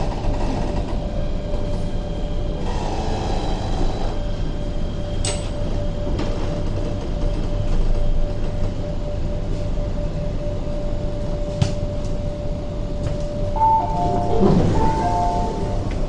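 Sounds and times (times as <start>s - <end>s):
metro train rumble: 0.0s - 16.0s
train whine: 12.3s - 16.0s
two-note door chime: 13.6s - 16.0s.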